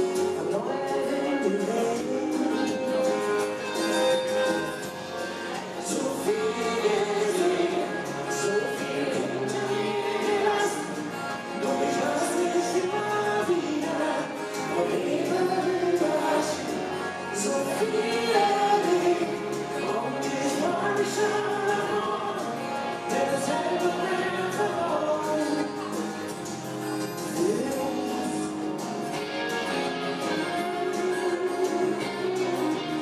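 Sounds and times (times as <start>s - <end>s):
acoustic guitar: 0.0s - 33.0s
electric bass: 0.0s - 33.0s
woman singing: 5.8s - 16.8s, 17.4s - 22.5s.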